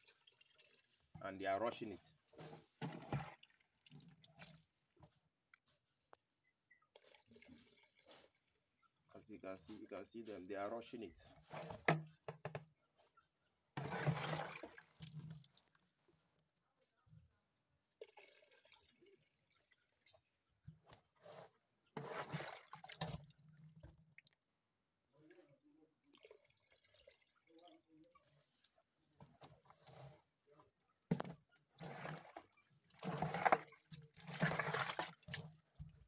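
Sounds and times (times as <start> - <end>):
water splashing in a tub: 0.0 - 5.1, 6.9 - 8.7, 13.8 - 16.5, 17.9 - 20.8, 22.0 - 24.5, 25.1 - 36.0
water dripping and sloshing: 0.0 - 5.7, 6.9 - 9.1, 13.8 - 16.6, 17.9 - 24.5, 25.1 - 36.0.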